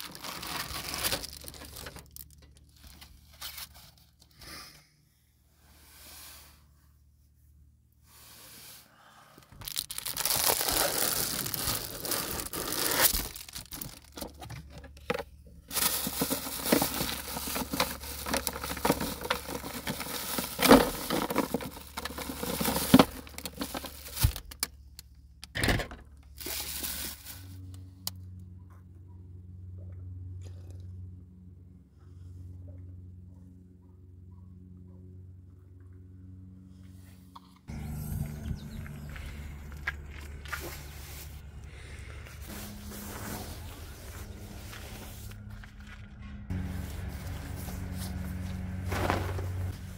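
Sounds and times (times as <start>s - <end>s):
plastic bags crinkling: 0.0s - 3.6s, 9.6s - 14.8s, 15.7s - 24.6s, 26.4s - 27.6s.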